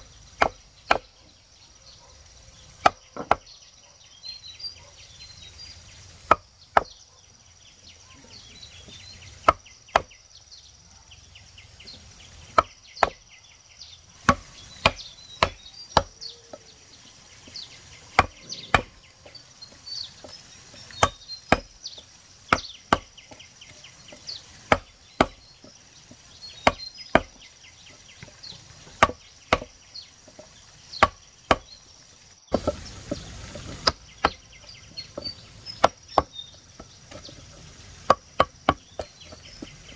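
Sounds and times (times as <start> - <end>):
blade chopping wood: 0.3 - 1.1, 2.8 - 3.5, 6.2 - 7.0, 8.9 - 10.2, 11.9 - 13.2, 14.2 - 16.2, 18.1 - 19.4, 20.2 - 27.4, 28.2 - 31.8, 32.5 - 39.9.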